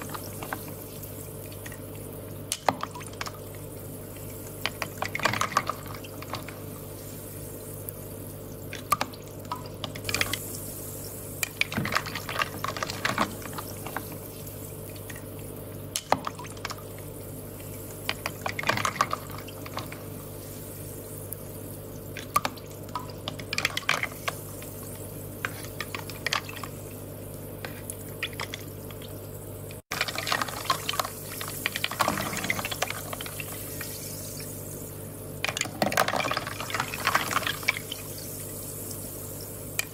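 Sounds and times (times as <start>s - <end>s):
small splashes and clicks: 0.0s - 6.9s, 7.7s - 10.6s, 11.4s - 20.4s, 22.1s - 26.9s, 27.6s - 34.5s
water trickling and dripping: 0.0s - 39.9s.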